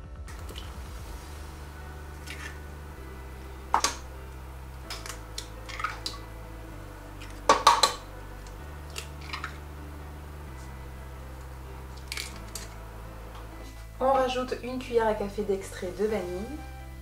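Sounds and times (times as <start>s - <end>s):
eggs cracking on metal bowl: 3.7s - 4.1s, 4.8s - 6.3s, 7.1s - 9.6s, 11.9s - 12.8s.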